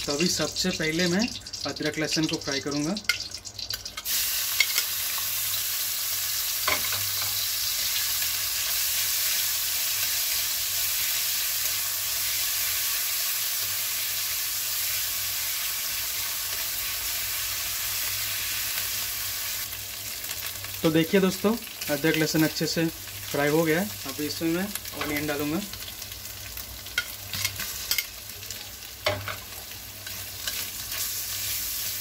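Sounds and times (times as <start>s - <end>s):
food sizzling in hot oil: 0.0s - 32.0s.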